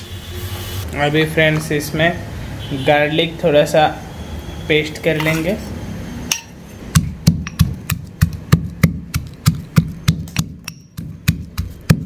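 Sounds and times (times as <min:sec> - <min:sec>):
stone pestle pounding garlic: 0:06.3 - 0:12.0.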